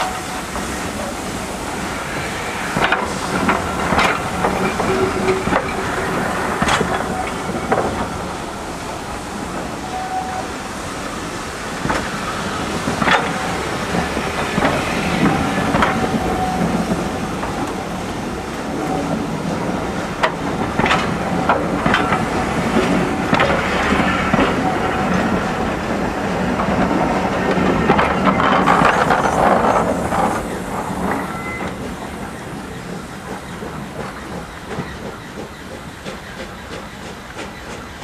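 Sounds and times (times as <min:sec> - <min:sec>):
train coaches rumbling past: 0:00.0 - 0:38.0
wheels clicking over rail joints: 0:11.8 - 0:38.0.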